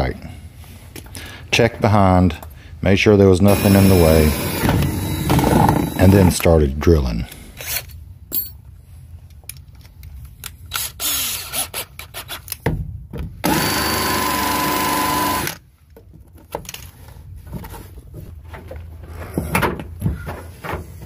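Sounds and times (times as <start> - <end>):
cordless drill whining: 3.5 - 6.3, 13.4 - 15.6.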